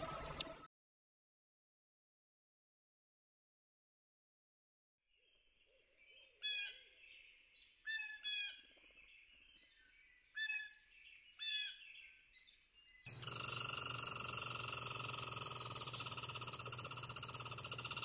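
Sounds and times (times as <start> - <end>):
loud continuous animal calling: 12.8 - 18.0.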